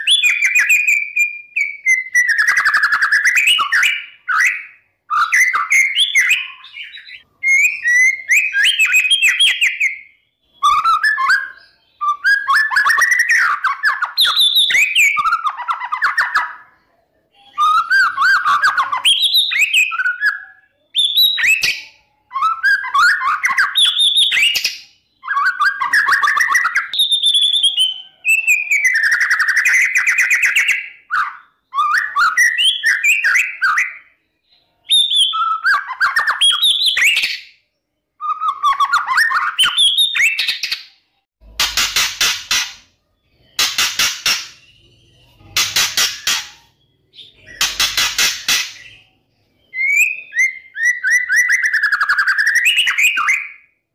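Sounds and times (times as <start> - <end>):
bird whistled song: 0.0 - 41.0, 42.2 - 53.8.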